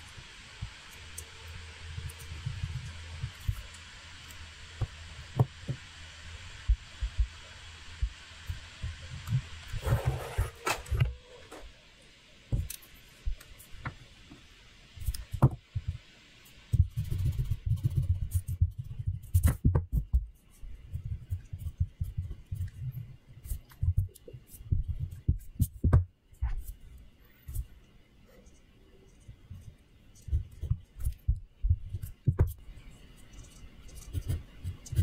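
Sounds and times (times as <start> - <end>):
pencil drawing on paper: 8.8 - 11.1, 15.0 - 26.8, 27.4 - 35.0.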